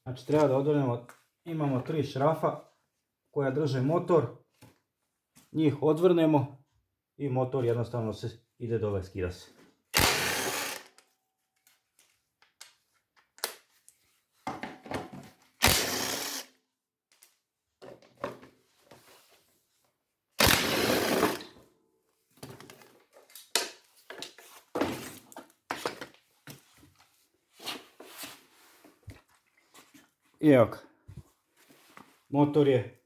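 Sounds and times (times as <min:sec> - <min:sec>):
cordless drill running: 0:10.0 - 0:11.0, 0:15.6 - 0:16.5, 0:20.4 - 0:21.4.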